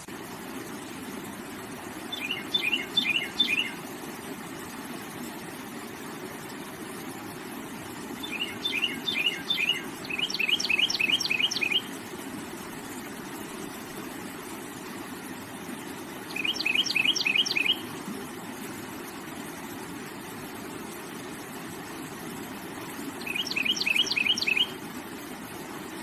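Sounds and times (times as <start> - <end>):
flowing water: 0.0 - 26.0
songbird chirping: 2.1 - 3.8, 8.2 - 12.0, 16.3 - 17.9, 23.2 - 24.8.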